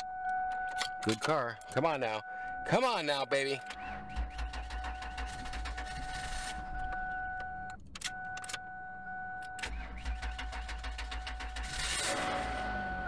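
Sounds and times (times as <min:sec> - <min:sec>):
car engine cranking and starting: 0:03.4 - 0:08.7, 0:09.4 - 0:13.0.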